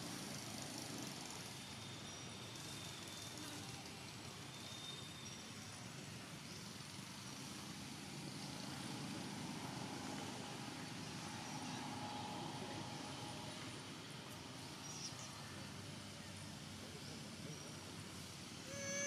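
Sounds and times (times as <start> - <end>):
distant engine hum: 8.1 - 19.0.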